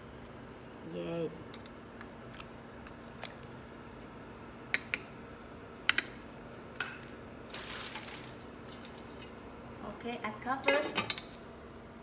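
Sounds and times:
steady low hum: 0.0s - 10.6s.

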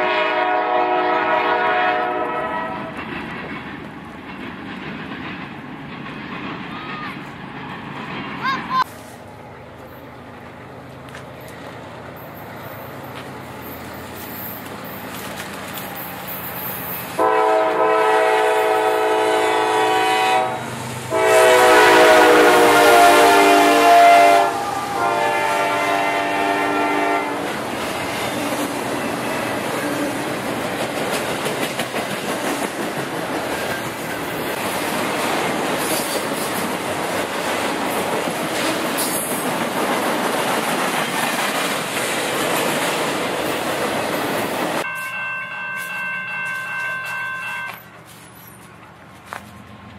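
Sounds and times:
locomotive air horn blasts: 0.0s - 3.0s, 17.2s - 27.5s
train wheels rumbling on rails: 0.0s - 49.9s.

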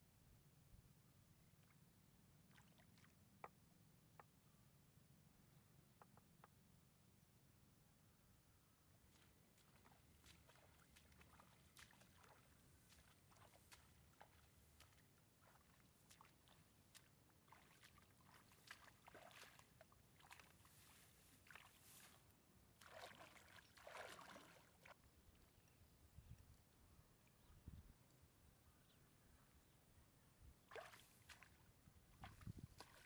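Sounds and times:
rustling through tall grass: 17.5s - 24.5s.

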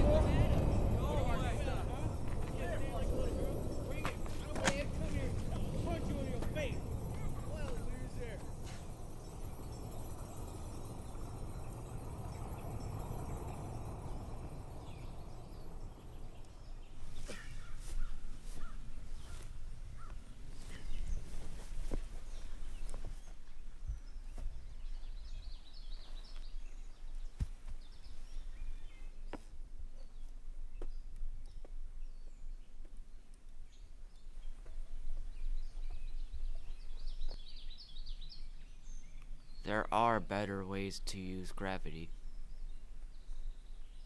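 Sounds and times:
steady low rumble: 0.0s - 17.1s
birds calling: 0.0s - 44.0s.

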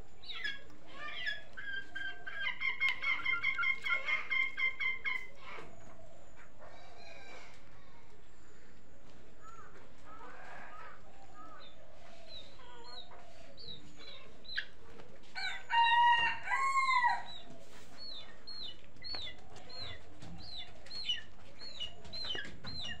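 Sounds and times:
chicks peeping: 0.1s - 23.0s
rooster crowing: 15.4s - 17.5s.

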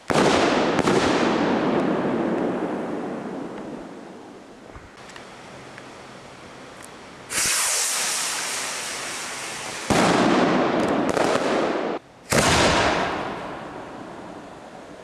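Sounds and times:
fireworks bursting with loud bangs: 0.0s - 4.9s, 7.3s - 14.8s.

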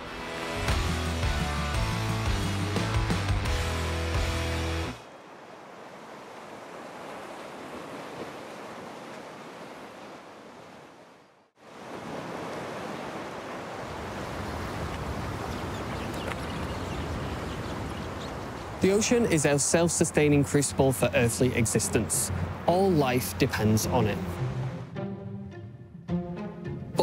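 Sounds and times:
waves washing ashore: 5.0s - 24.9s.

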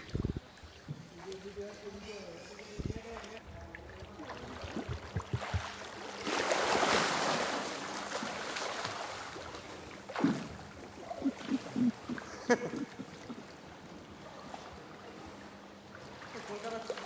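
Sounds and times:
swimming stroke splashes: 4.2s - 13.6s, 16.0s - 17.0s.

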